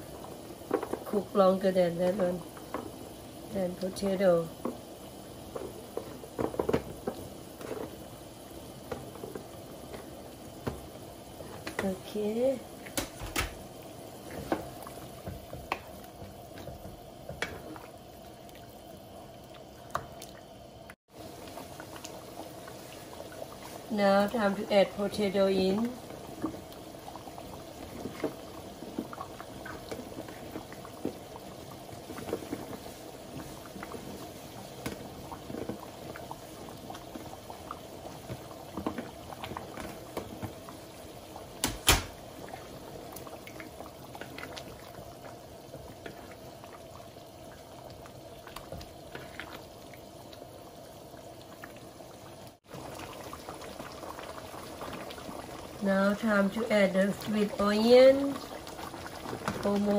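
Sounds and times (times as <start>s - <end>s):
sauce bubbling in a pot: 0.0s - 59.9s
wooden spoon stirring: 21.4s - 40.8s.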